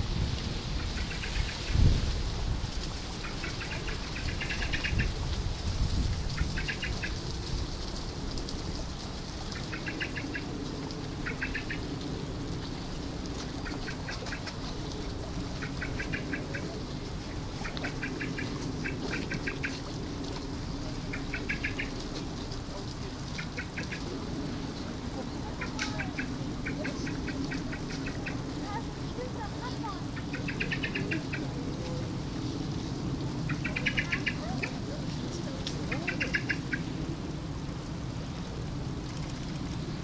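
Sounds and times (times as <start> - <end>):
animal calling in rattling trills: 3.2 - 5.2, 6.2 - 7.4, 9.5 - 12.2, 12.9 - 22.5, 25.3 - 31.7, 33.4 - 37.1.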